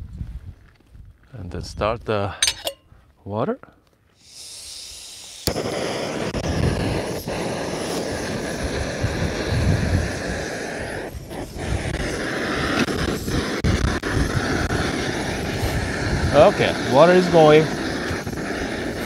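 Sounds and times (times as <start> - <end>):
gas hiss: 4.2 - 19.0
gas burner rushing: 5.3 - 19.0.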